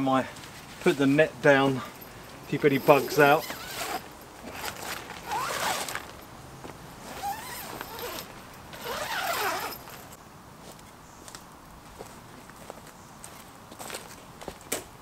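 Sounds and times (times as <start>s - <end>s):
zipper being zipped closed: 2.9s - 6.1s, 7.0s - 10.0s.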